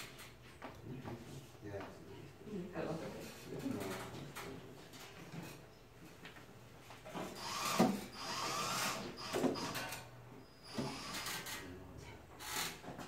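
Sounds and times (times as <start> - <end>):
power tool on wood: 7.4 - 10.0.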